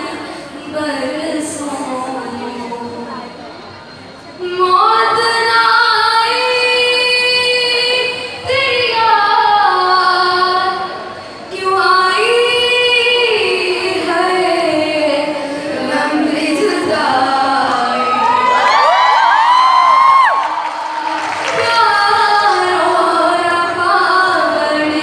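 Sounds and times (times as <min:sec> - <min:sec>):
woman singing into a microphone: 0:00.0 - 0:03.4, 0:04.4 - 0:19.0, 0:20.8 - 0:25.0.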